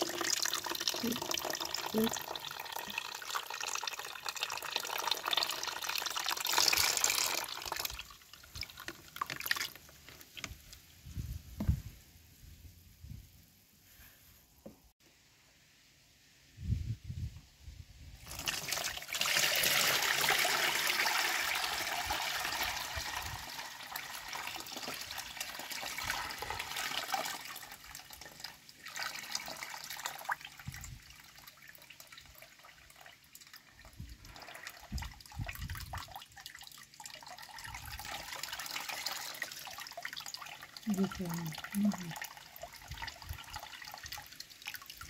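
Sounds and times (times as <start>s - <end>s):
liquid pouring and splashing: 0.0s - 10.9s, 18.2s - 45.0s.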